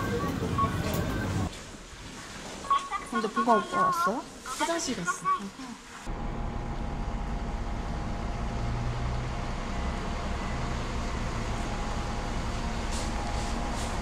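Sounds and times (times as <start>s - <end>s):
coach engine idling: 6.1s - 14.0s.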